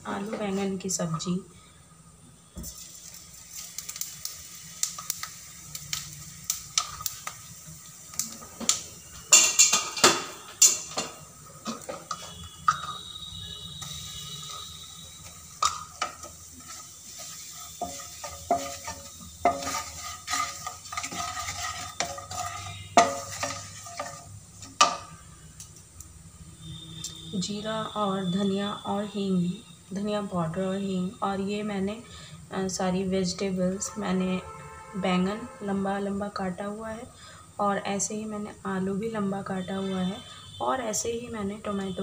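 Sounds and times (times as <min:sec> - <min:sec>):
seeds sizzling in hot oil: 0:01.6 - 0:42.0
wooden spatula scraping pan: 0:15.6 - 0:25.0.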